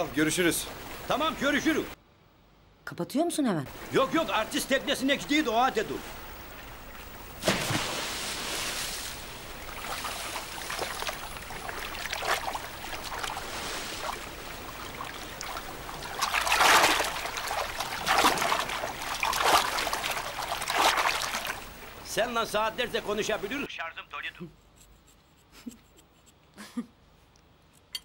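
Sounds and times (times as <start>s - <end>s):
sea water splashing: 3.7s - 23.7s.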